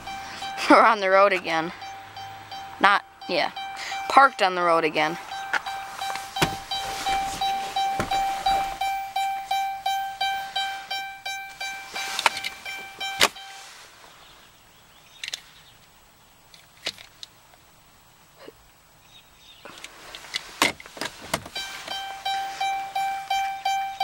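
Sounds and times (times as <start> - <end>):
dashboard warning chime dinging: 0.0 - 13.8, 21.5 - 24.0.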